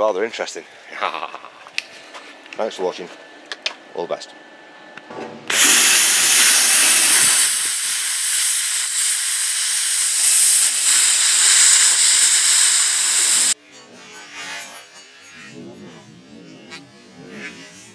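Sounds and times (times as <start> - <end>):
plasma cutter arc hissing: 5.5 - 13.6.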